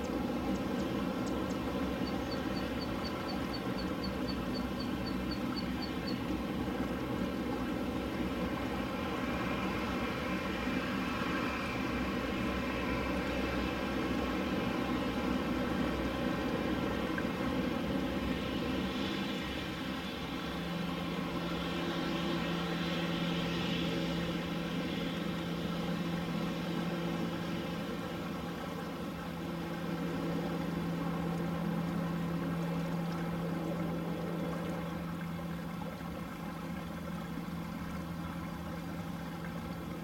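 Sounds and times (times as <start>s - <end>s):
turboprop engines droning: 0.0s - 40.0s.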